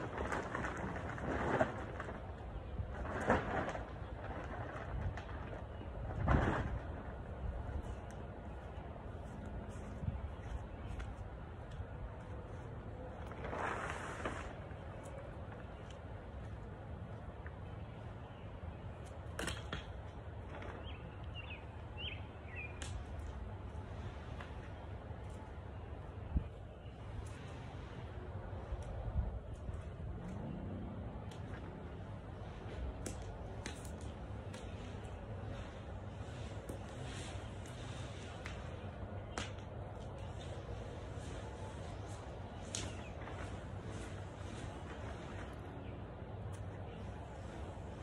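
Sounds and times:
plastic tarp crackling snaps: 0.0 - 8.2, 13.1 - 16.0
sharp crackle: 0.0 - 8.3, 31.0 - 45.8.

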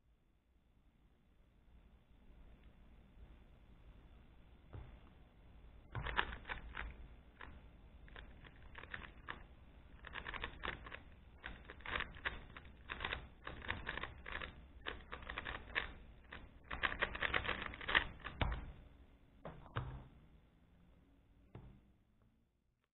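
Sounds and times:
puzzle cube turning clatter: 6.0 - 18.7.

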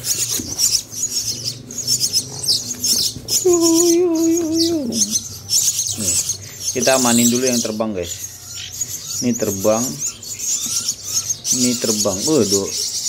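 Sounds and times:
nestlings chirping: 0.0 - 13.0.

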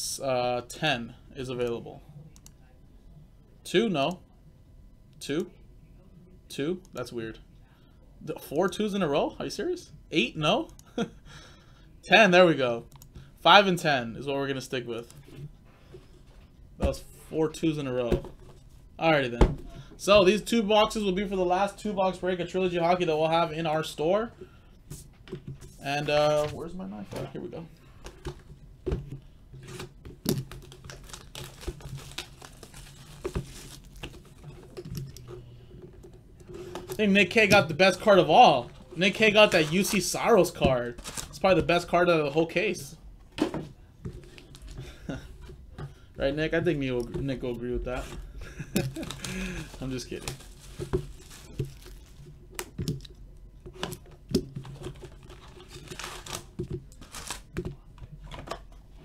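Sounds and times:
plastic shrink wrap crinkling: 29.6 - 35.1, 38.6 - 41.7, 48.0 - 53.1, 54.5 - 57.8.

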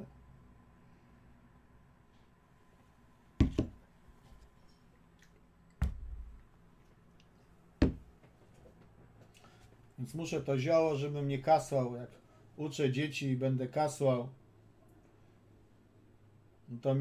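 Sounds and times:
mug knocking on a desk: 3.4 - 3.8, 5.8 - 6.4, 7.8 - 8.1
low thud: 5.8 - 6.4.

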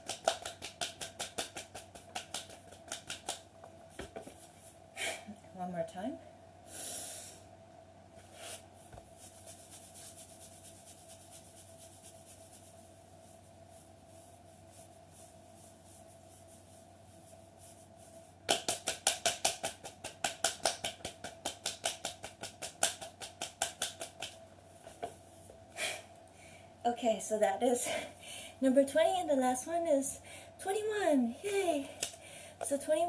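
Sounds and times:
hands rubbing legs: 0.0 - 4.8, 17.3 - 25.6
faint steady hum: 0.0 - 33.0.

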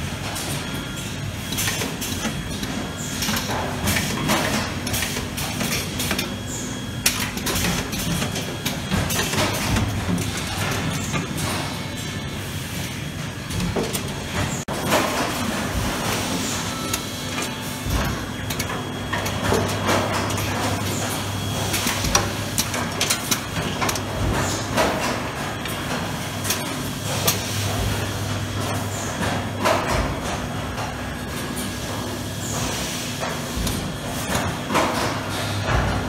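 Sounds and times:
machine hum: 0.0 - 36.0
machine clicks and knocks: 1.5 - 12.2, 13.4 - 36.0.

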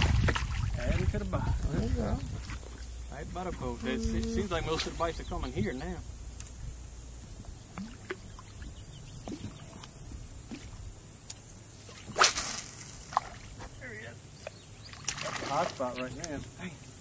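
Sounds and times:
short loud splash: 12.0 - 13.4, 15.0 - 15.8.

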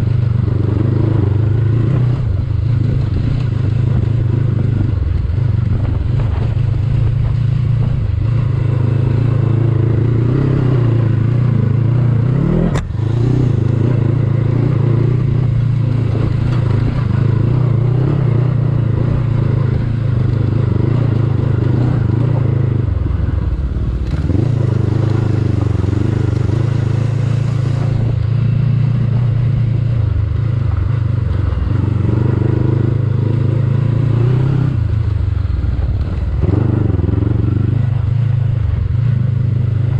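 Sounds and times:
motorcycle engine under load: 0.0 - 39.9
sharp click: 12.7 - 12.9.

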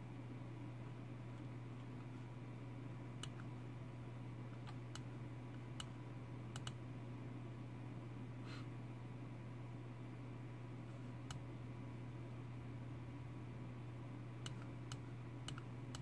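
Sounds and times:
steady low hum: 0.0 - 16.0
computer mouse clicks: 3.2 - 3.5, 5.8 - 6.8, 14.4 - 16.0.

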